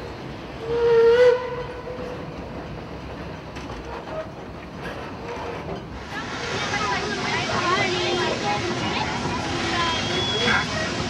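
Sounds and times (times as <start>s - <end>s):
steam train rumbling: 0.0s - 11.0s
steam whistle: 0.6s - 1.9s.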